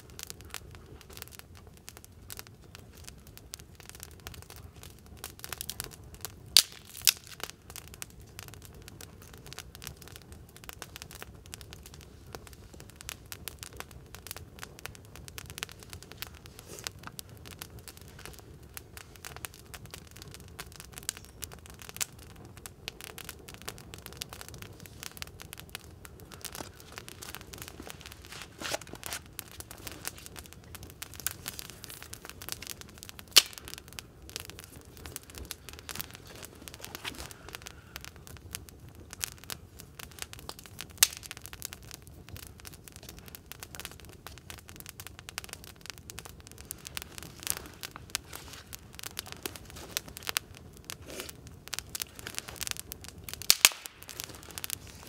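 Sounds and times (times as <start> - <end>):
campfire crackling: 0.0 - 55.0
loud fire pops: 0.0 - 55.0.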